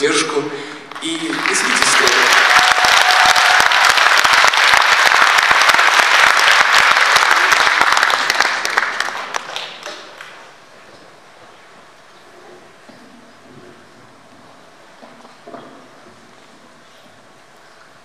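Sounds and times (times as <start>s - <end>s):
audience clapping: 0.8s - 10.6s.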